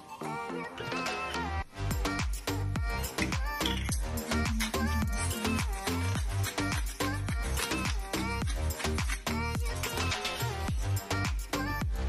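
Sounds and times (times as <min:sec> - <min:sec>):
steady dance beat: 0:02.3 - 0:09.2
wavering melody line: 0:03.5 - 0:06.2.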